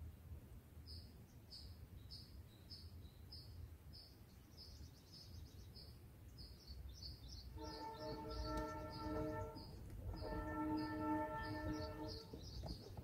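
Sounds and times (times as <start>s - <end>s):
nestlings chirping: 6.6s - 13.0s
steady music chord: 7.6s - 12.2s.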